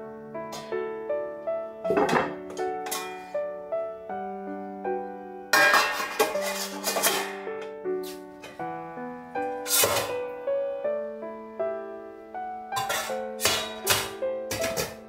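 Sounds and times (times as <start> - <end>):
gentle piano music: 0.0 - 15.0
metal wok clanking and scraping: 1.9 - 3.4, 5.5 - 8.6, 9.6 - 10.2, 12.8 - 15.0.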